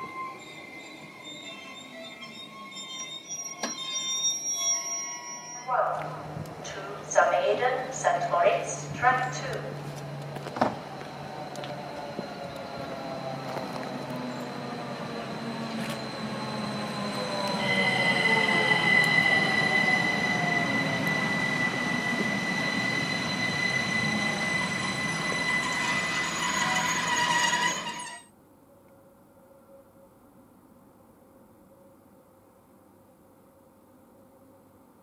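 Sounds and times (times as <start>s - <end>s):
high steady squeal: 0.0s - 6.8s, 14.2s - 28.3s
electric train drive whine: 0.0s - 28.2s.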